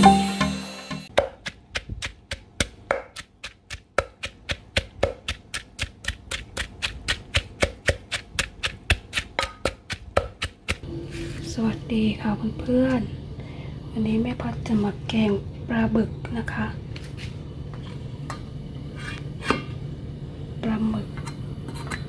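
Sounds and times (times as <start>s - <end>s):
short music jingle: 0.0s - 1.1s
knife chopping on cutting board: 1.1s - 10.8s.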